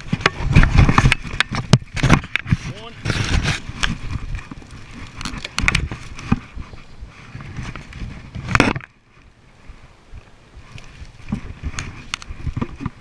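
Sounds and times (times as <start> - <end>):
sticks snapping underfoot: 0.0 - 6.4, 11.7 - 12.9
gear scraping against camera: 0.0 - 13.0.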